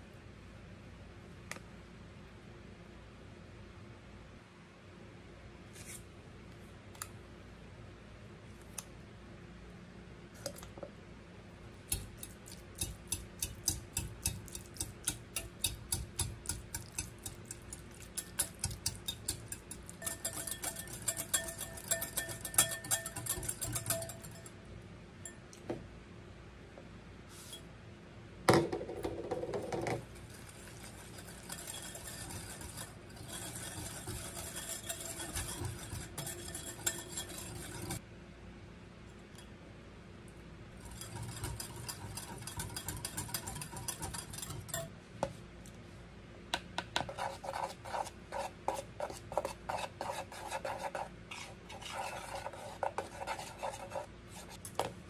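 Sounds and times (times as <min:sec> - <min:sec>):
whisk beating in glass bowl: 0:11.9 - 0:24.6, 0:30.0 - 0:38.0, 0:40.8 - 0:44.9, 0:47.0 - 0:54.6.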